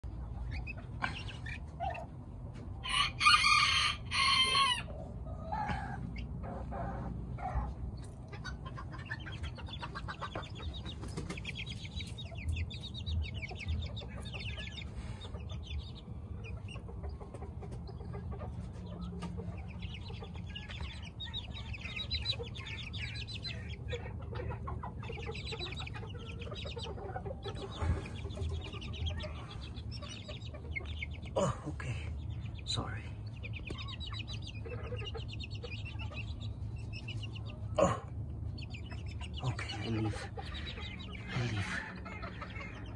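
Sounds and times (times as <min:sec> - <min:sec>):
hen and chicks clucking: 0:00.0 - 0:42.9
loud drawn-out hen call: 0:02.8 - 0:06.0.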